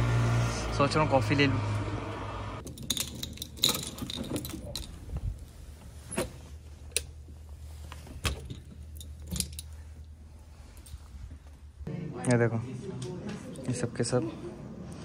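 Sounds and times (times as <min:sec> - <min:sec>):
keys jangling: 0:02.6 - 0:05.0, 0:08.3 - 0:09.8.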